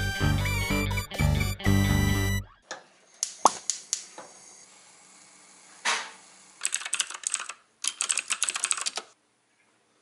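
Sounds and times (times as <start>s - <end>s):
fast typing on keyboard: 6.6s - 9.2s.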